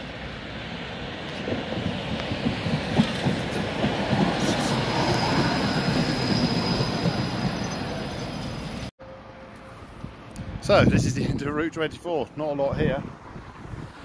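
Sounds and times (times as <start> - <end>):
tram wheels rumbling and knocking: 0.4 - 8.9
high wheel squeal: 3.4 - 8.9.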